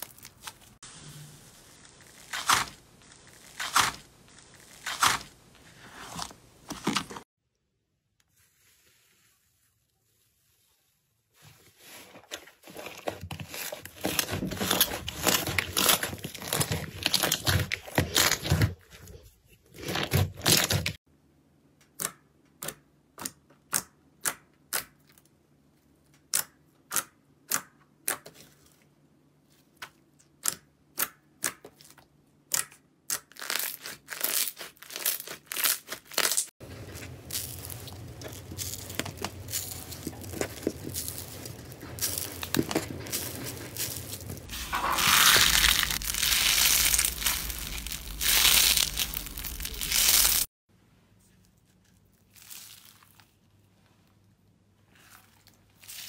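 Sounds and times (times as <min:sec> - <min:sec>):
sponge cubes rustling: 0:00.0 - 0:07.3, 0:11.3 - 0:21.0, 0:33.4 - 0:50.5
slime crackling and tearing: 0:01.6 - 0:05.4, 0:13.4 - 0:18.8, 0:32.5 - 0:50.5, 0:52.3 - 0:53.3.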